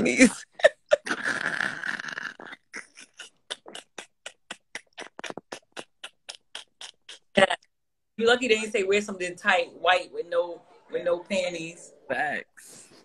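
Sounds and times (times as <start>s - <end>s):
person wheezing laughter: 0.0s - 7.6s.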